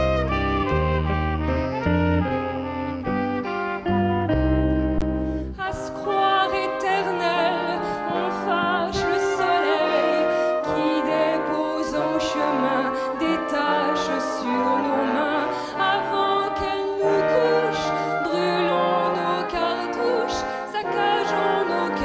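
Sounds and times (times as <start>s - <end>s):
live band with horns: 0.0s - 22.0s
woman singing with vibrato: 5.6s - 22.0s.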